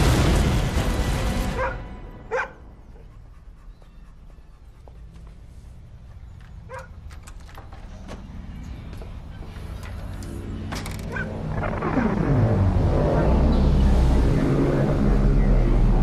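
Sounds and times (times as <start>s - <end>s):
loud crashing rumble: 0.0s - 2.3s
dog barking: 1.6s - 2.6s, 6.7s - 7.0s, 11.1s - 11.3s.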